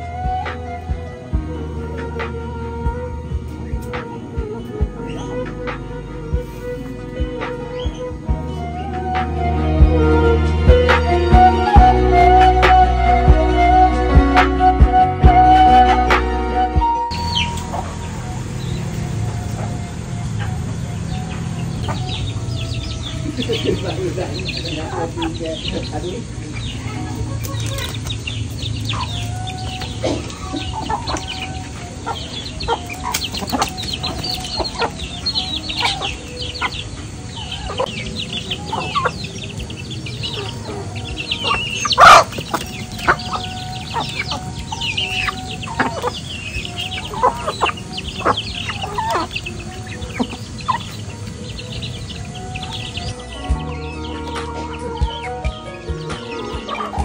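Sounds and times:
chickens clucking: 17.1s - 57.0s.

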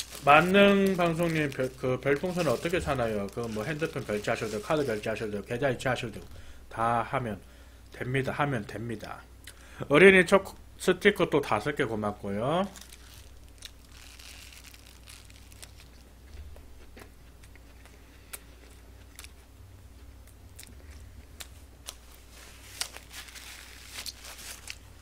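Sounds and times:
small crunches: 0.0s - 5.2s, 12.6s - 19.4s, 20.0s - 25.0s
paper napkin rustling: 0.0s - 5.5s, 21.9s - 25.0s
man chewing food: 15.5s - 23.0s.

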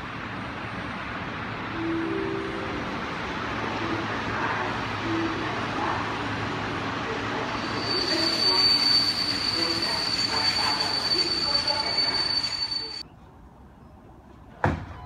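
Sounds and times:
train running on rails: 0.0s - 14.6s
high-pitched wheel squeal: 7.5s - 13.0s.

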